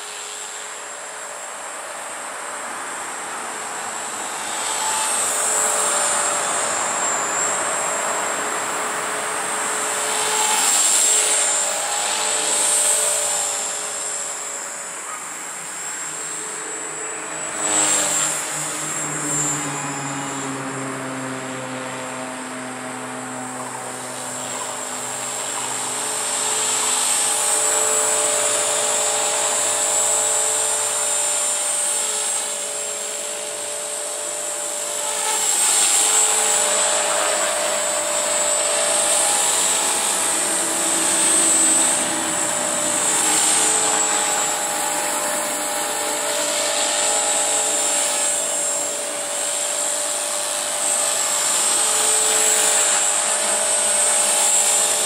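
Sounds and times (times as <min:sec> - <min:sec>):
electric motor whine: 0:00.0 - 0:55.0
helicopter rotor blades humming: 0:00.0 - 0:55.0.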